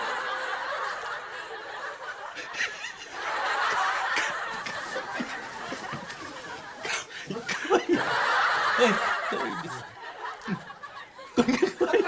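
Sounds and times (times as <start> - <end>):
people laughing: 0.0 - 12.0
man laughing: 6.8 - 12.0.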